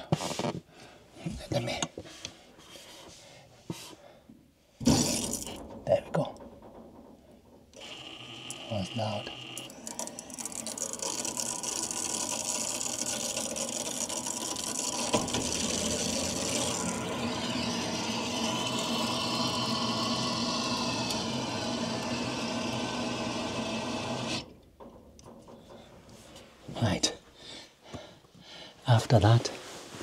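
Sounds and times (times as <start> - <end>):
water hissing through valve: 4.8 - 5.6, 8.5 - 24.5.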